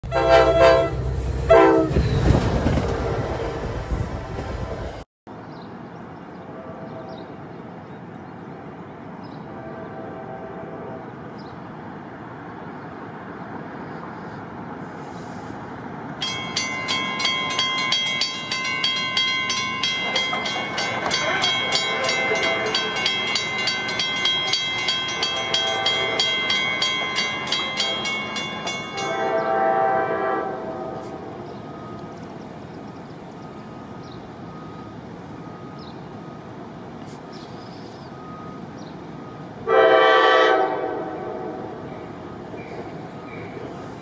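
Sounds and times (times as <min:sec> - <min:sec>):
distant locomotive horn: 0:00.0 - 0:02.0, 0:06.4 - 0:07.5, 0:08.6 - 0:11.4, 0:21.0 - 0:23.7, 0:25.0 - 0:26.5, 0:29.0 - 0:32.0, 0:39.2 - 0:42.0
warning bell ringing rapidly: 0:16.2 - 0:29.2.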